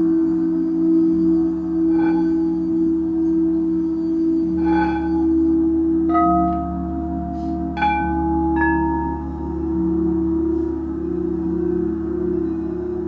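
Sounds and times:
singing bowls droning: 0:00.0 - 0:13.0
mallet striking singing bowl: 0:06.1 - 0:09.6.

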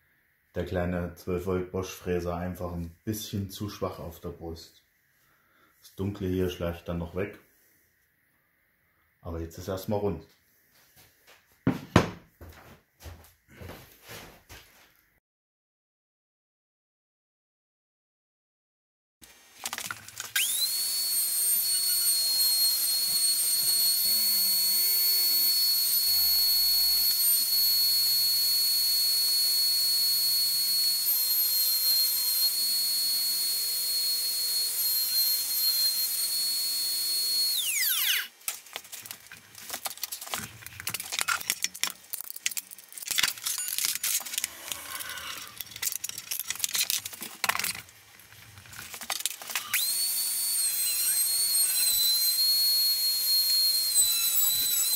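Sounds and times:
router high-pitched whine: 0:19.7 - 0:38.3, 0:49.1 - 0:54.9.

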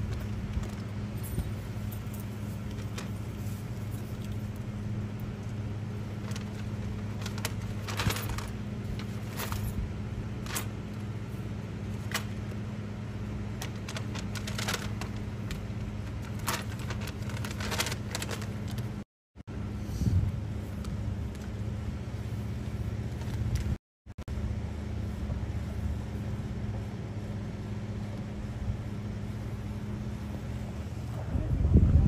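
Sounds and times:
steady low hum: 0:00.0 - 0:32.0
plastic items clicking and rattling: 0:13.6 - 0:18.9.

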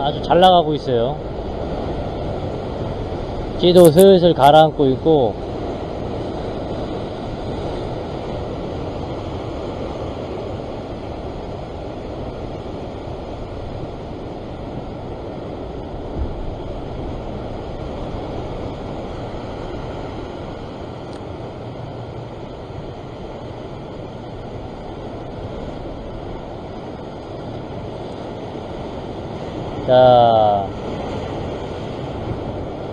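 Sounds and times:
waves washing on rocky shore: 0:00.0 - 0:32.9
low bump: 0:15.9 - 0:18.6.

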